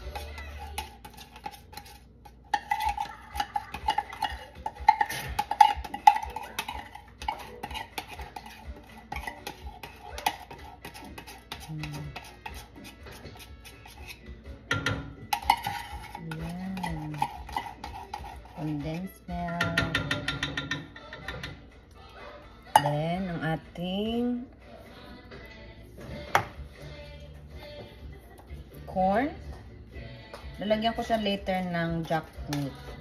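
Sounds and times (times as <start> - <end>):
utensil clinking against pot: 0.0 - 21.6
utensil stirring in pot: 0.0 - 21.8, 26.2 - 33.0.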